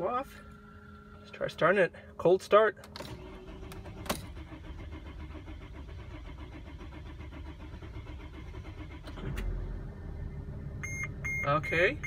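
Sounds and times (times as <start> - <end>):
van engine cranking and starting: 2.8 - 12.0.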